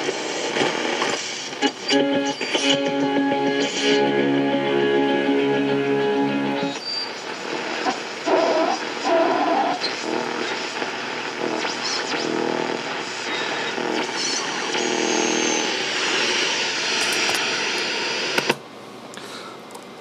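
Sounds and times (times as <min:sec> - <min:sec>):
radio static hiss: 0:00.0 - 0:18.6
faint radio programme sound: 0:06.6 - 0:17.0.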